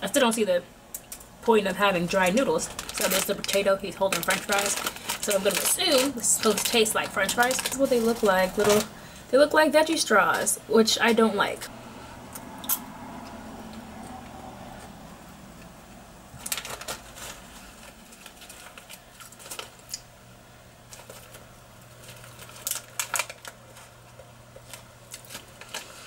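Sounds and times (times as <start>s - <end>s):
plastic snack packet handled: 2.1s - 9.0s, 16.4s - 20.1s, 20.9s - 26.0s
low hum: 11.6s - 18.9s
crunching potato snack: 20.8s - 26.0s.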